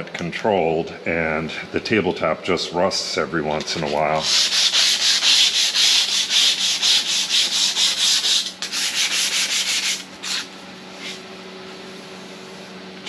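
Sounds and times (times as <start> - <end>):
sanding pad scrubbing metal: 3.7 - 11.2.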